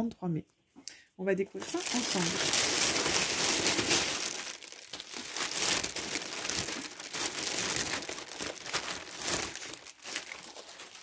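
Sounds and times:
plastic packaging crinkling: 1.6s - 11.0s.

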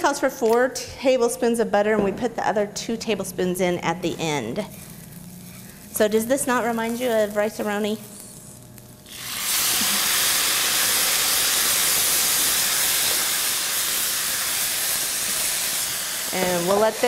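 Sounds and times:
sizzling hiss of steam in pan: 6.8s - 17.0s.

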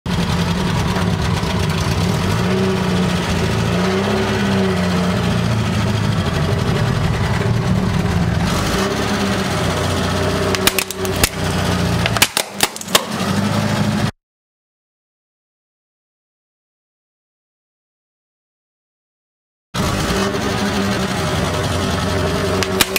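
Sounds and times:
car engine running slowly: 0.1s - 14.1s, 19.8s - 22.9s
objects cracking under tyre: 10.5s - 13.2s, 22.6s - 22.9s.

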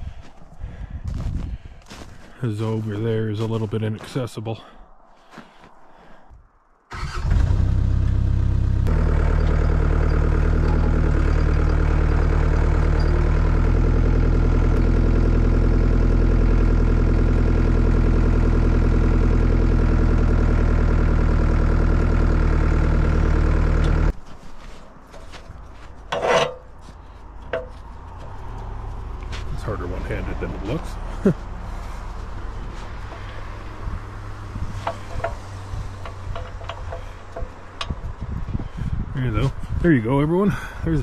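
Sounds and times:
engine running steadily: 7.0s - 24.1s, 26.9s - 41.0s.

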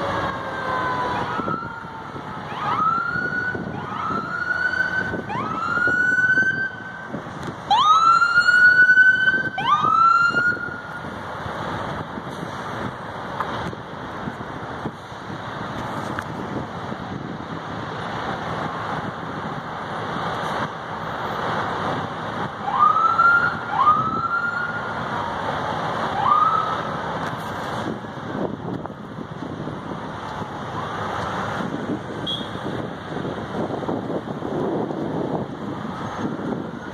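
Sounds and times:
siren whoops: 0.0s - 7.1s, 7.7s - 10.9s, 22.6s - 24.8s, 26.2s - 26.9s
emergency siren wailing: 0.0s - 13.0s, 21.8s - 27.2s, 27.8s - 36.9s
traffic hum: 0.0s - 36.9s
wind: 0.0s - 36.9s.

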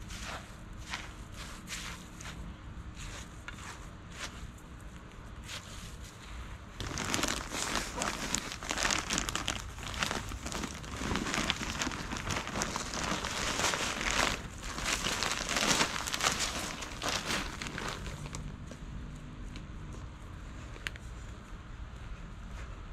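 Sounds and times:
plastic bag crinkling: 6.8s - 18.5s.

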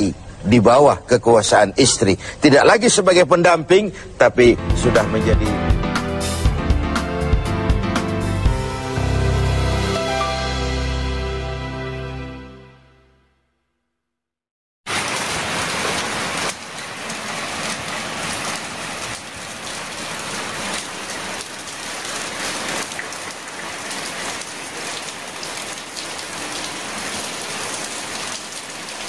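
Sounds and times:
steady noise like heavy rain: 0.0s - 5.4s, 14.9s - 29.0s.

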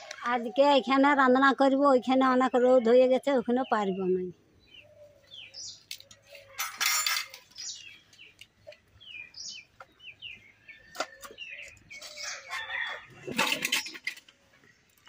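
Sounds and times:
birds chirping: 0.0s - 14.9s.

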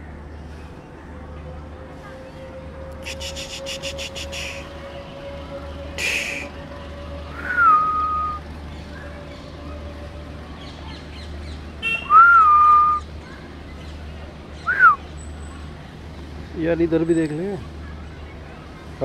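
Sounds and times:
breathy hiss: 6.0s - 6.5s
whistled notes: 7.4s - 8.4s, 12.1s - 13.0s, 14.7s - 15.0s.

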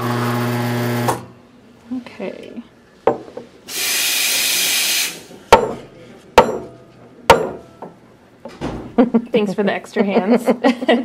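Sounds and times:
steam wand hissing: 3.7s - 5.3s.

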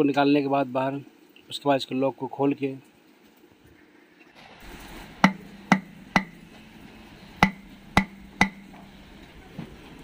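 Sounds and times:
metallic knocks on steel shell: 5.2s - 6.6s, 7.4s - 8.9s.

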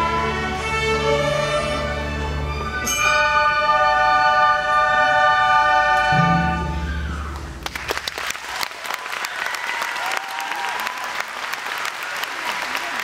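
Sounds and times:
string orchestra holding a chord: 3.2s - 7.1s
applause: 7.6s - 13.0s.

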